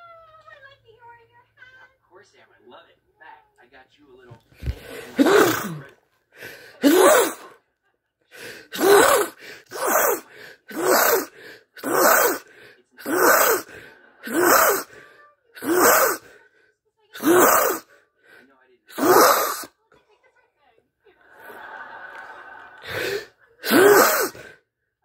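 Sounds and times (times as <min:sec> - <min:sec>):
gasping in-breath: 0:04.5 - 0:07.6, 0:08.3 - 0:19.7, 0:22.8 - 0:24.7
man sneezing: 0:04.6 - 0:07.6, 0:08.4 - 0:15.0, 0:15.6 - 0:16.4, 0:17.2 - 0:18.0, 0:18.9 - 0:19.7, 0:22.8 - 0:24.6.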